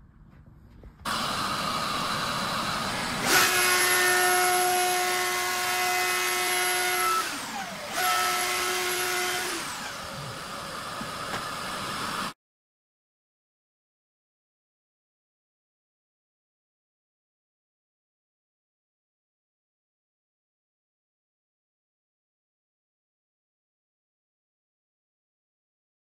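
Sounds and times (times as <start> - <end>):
dust extractor rushing: 1.1 - 12.4
router high whine: 1.1 - 12.4.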